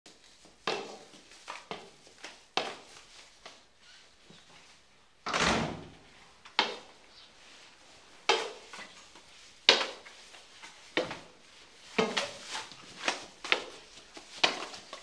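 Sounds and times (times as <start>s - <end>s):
door bumping shut: 5.3s - 6.0s
wooden door knocks and clunks: 5.3s - 6.0s.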